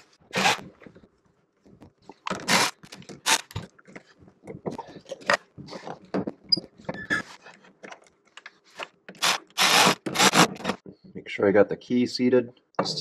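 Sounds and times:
rubber and plastic handling noises: 0.0 - 11.2.

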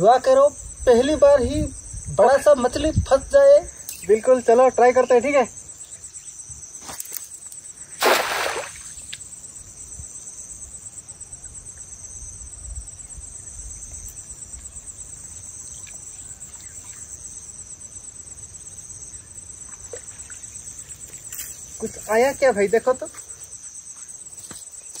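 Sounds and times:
insects chirring: 0.0 - 25.0
cast net splashing: 8.0 - 9.1.

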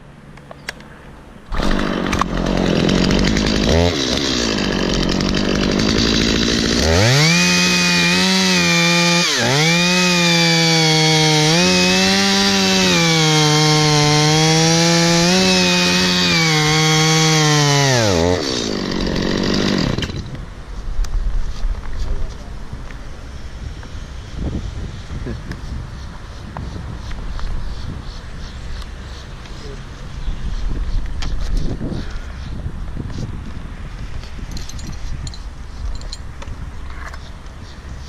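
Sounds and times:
chainsaw cutting wood: 1.5 - 20.4.

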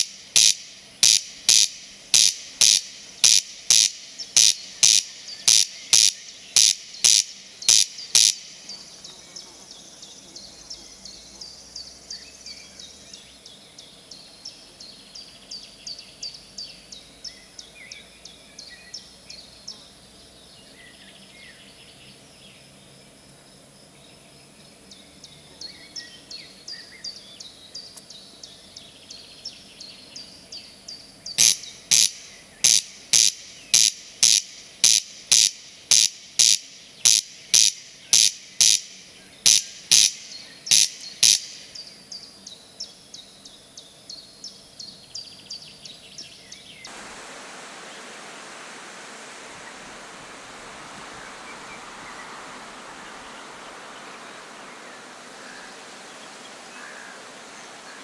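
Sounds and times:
corncrake rasping call: 0.0 - 8.6, 31.4 - 41.6.

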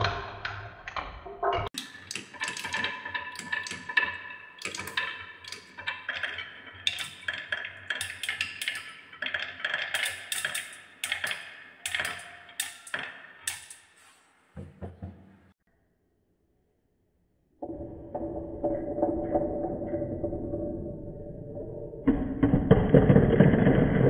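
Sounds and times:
marbles clacking on wooden track: 1.7 - 13.8.

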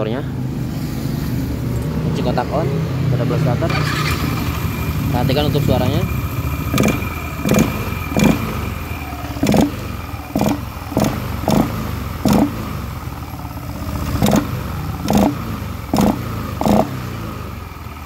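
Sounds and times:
drive belt and pulleys spinning: 3.7 - 18.0
scooter engine running: 3.7 - 18.0.

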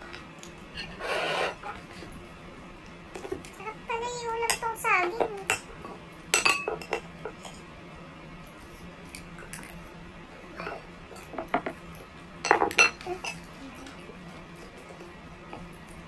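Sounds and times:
cutlery clinking on plate: 6.4 - 7.6, 12.5 - 13.4.

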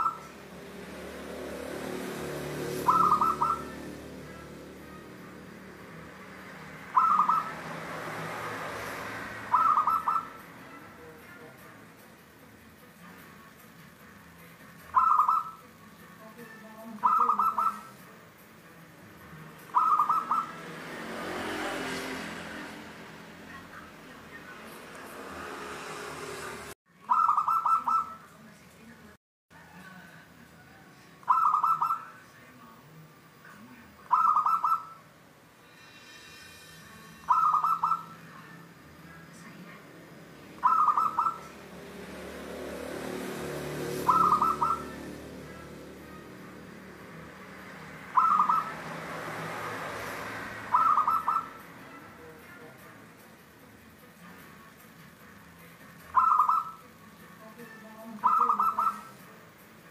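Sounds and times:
dove cooing: 0.0 - 0.3, 2.2 - 4.5, 6.8 - 7.8, 9.4 - 10.4, 14.9 - 15.6, 17.0 - 18.0, 19.7 - 20.7, 27.1 - 28.2, 31.3 - 32.0, 34.1 - 35.0, 37.3 - 38.2, 40.6 - 41.5, 43.6 - 45.8, 48.1 - 49.0, 50.6 - 51.6, 56.1 - 56.8, 58.2 - 59.2.

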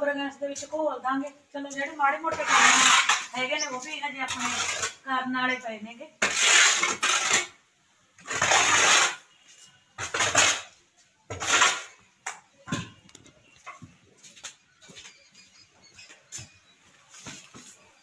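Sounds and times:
scraper on concrete floor: 2.3 - 5.0, 6.2 - 7.6, 8.2 - 12.0.

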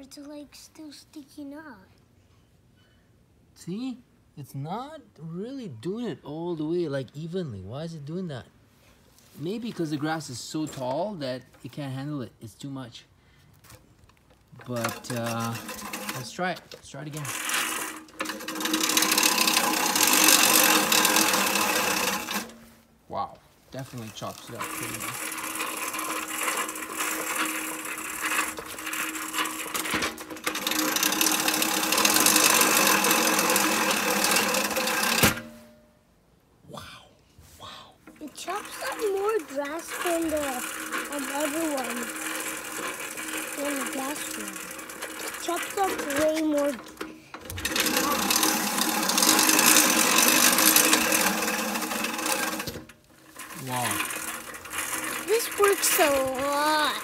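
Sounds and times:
reel mower blades whirring: 13.6 - 22.9, 23.6 - 35.8, 38.0 - 57.0.

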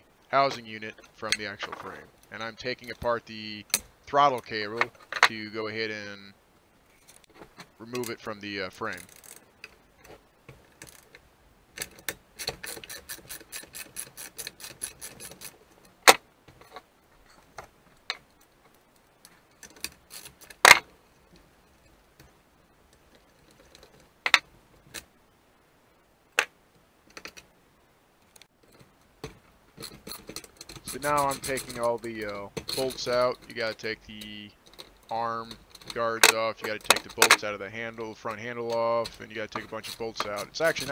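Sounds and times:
sharp metallic clicks and knocks: 28.3 - 40.9.

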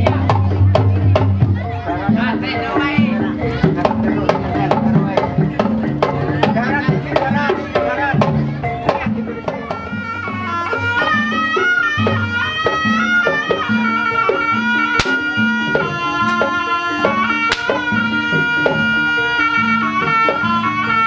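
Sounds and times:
drum and percussion rhythm: 0.0 - 21.0
wind instrument melody: 8.5 - 21.0
sharp cracks: 15.0 - 15.2, 17.5 - 17.8.

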